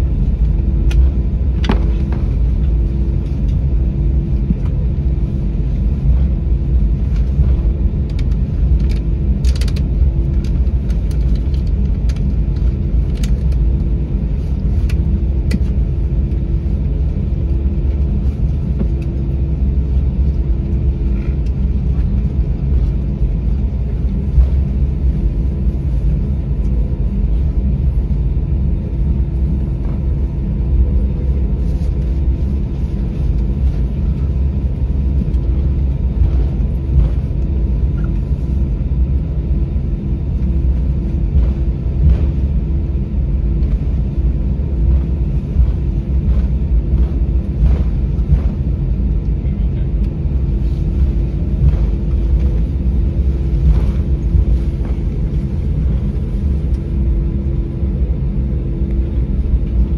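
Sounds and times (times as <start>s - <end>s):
low rumble of engines and wheels: 0.0s - 59.9s
steady hum: 0.0s - 59.9s
light rattling clicks: 8.1s - 13.7s.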